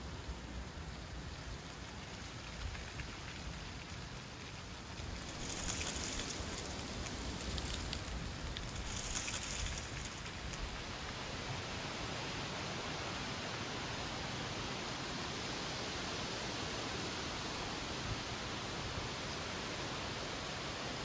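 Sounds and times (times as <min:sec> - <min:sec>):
wind blowing through trees: 0:00.0 - 0:21.0
dry leaves rustling: 0:01.7 - 0:11.4.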